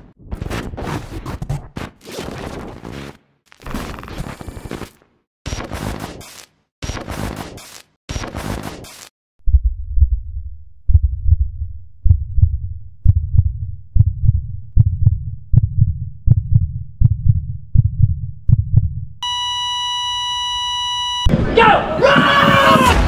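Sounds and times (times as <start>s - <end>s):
heartbeat thumps: 9.4s - 19.2s
steady electronic beep: 19.2s - 21.3s.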